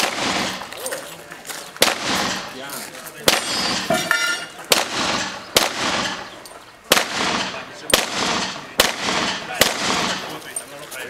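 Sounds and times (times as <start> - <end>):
pistol shots echoing: 0.0 - 0.7, 1.8 - 2.6, 3.2 - 10.4.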